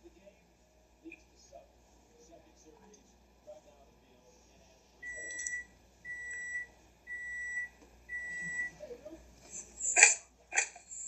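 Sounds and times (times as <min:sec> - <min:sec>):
high electronic beeps: 0:05.0 - 0:08.7.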